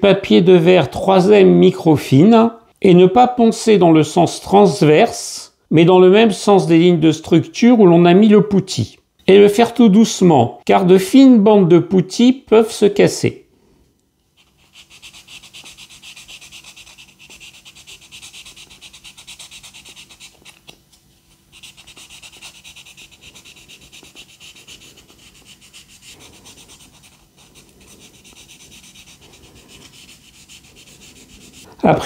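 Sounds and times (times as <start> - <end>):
sanding sponge scratching plastic: 14.4 - 20.7, 21.5 - 31.7.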